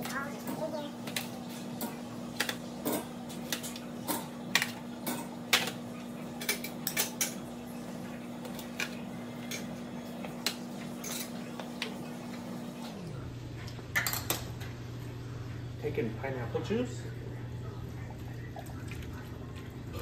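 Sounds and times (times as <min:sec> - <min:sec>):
metal utensils clattering on rack: 0:10.4 - 0:11.4.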